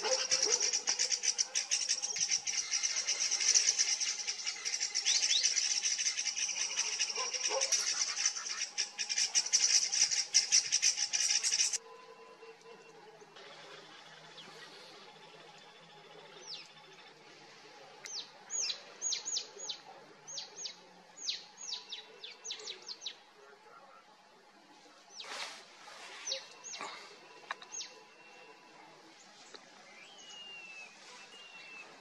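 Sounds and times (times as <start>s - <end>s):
birds chirping: 0.0s - 11.8s, 26.2s - 32.0s.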